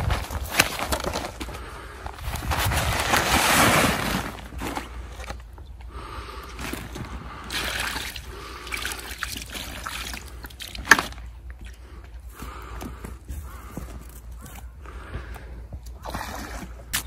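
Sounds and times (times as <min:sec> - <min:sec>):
water pouring and splashing: 0:07.5 - 0:11.3.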